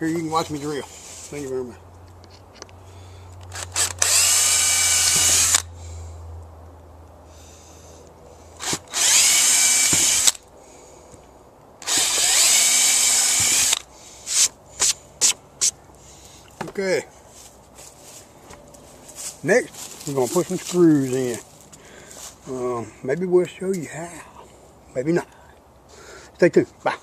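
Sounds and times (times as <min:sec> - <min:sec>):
drill trigger bursts: 0:03.5 - 0:05.7, 0:08.6 - 0:10.4, 0:11.8 - 0:14.5
power drill boring into wood: 0:03.5 - 0:05.7, 0:08.6 - 0:10.4, 0:11.8 - 0:14.5.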